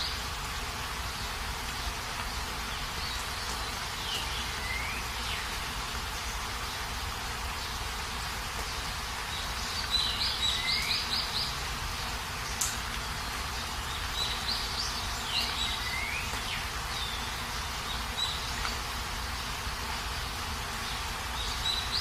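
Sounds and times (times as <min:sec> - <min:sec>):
bird chirping: 0:00.0 - 0:01.3, 0:02.2 - 0:06.5, 0:08.6 - 0:11.7, 0:13.5 - 0:22.0
rain hissing: 0:00.0 - 0:22.0.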